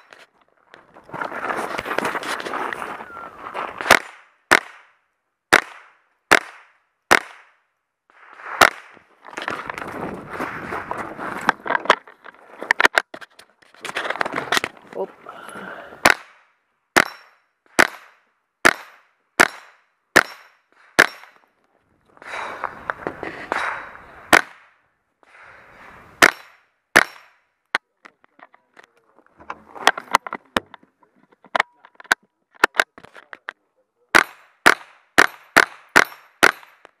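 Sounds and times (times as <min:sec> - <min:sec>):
rustling noise: 0:00.0 - 0:04.0, 0:08.1 - 0:15.2, 0:21.7 - 0:23.8
rifle shots: 0:03.8 - 0:07.6, 0:17.0 - 0:21.4, 0:34.2 - 0:36.8.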